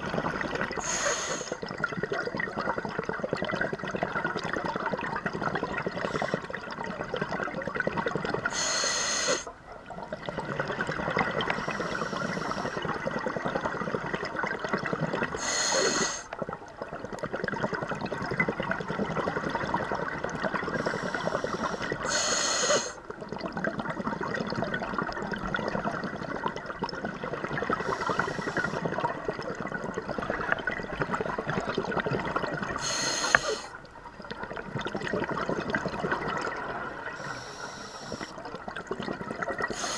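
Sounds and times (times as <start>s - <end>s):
exhaled bubbles rushing: 0.0s - 8.7s, 9.4s - 39.9s
regulator hissing inhalations: 0.8s - 1.6s, 8.5s - 9.5s, 11.5s - 12.8s, 15.4s - 16.3s, 20.8s - 23.0s, 27.8s - 28.8s, 32.8s - 33.8s, 37.2s - 38.4s.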